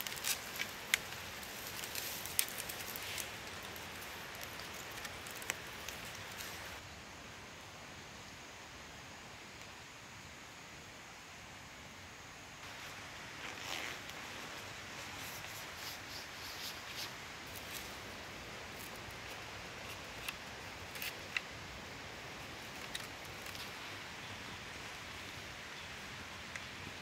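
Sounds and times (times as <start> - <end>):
rain hissing: 0.0 - 6.8
rustling: 0.0 - 6.8, 12.6 - 21.5, 22.3 - 25.3.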